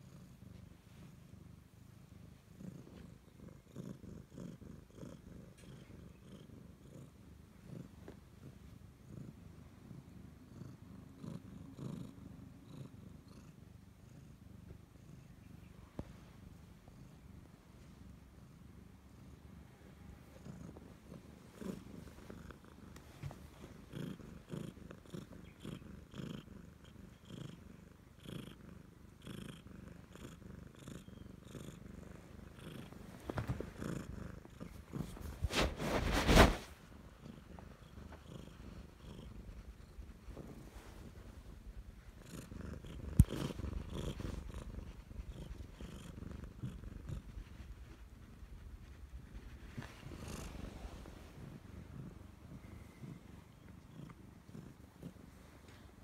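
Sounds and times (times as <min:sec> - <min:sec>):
cat purring: 0:00.0 - 0:56.0
cat rubbing against microphone: 0:32.3 - 0:52.2.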